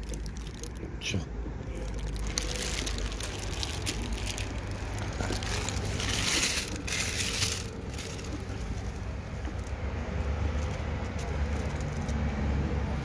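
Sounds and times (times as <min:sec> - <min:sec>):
paper wrapper crinkling: 0:00.0 - 0:00.9, 0:01.7 - 0:09.8
low rumble of street traffic: 0:00.0 - 0:13.0.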